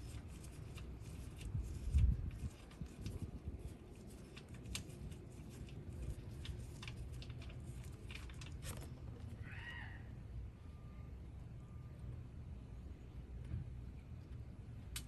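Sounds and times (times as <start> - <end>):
low steady rumble: 0.0 - 15.0.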